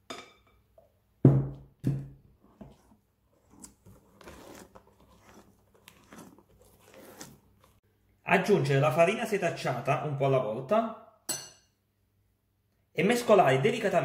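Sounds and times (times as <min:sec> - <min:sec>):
spatula squelching and scraping batter: 0:02.2 - 0:07.9.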